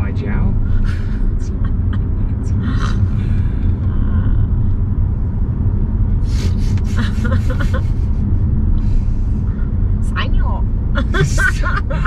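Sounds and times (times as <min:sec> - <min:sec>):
car interior road and engine noise: 0:00.0 - 0:12.0.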